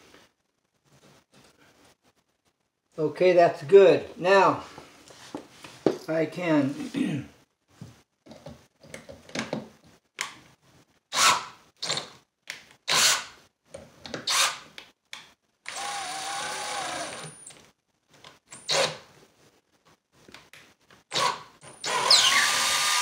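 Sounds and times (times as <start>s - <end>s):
cordless drill spinning: 14.3s - 14.6s, 15.7s - 17.6s, 21.2s - 23.0s.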